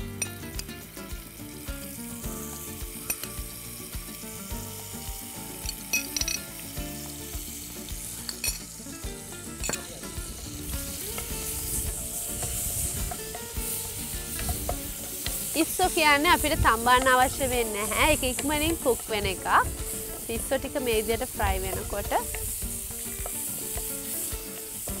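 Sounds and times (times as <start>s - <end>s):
shrimp sizzling in hot oil: 0.0s - 25.0s.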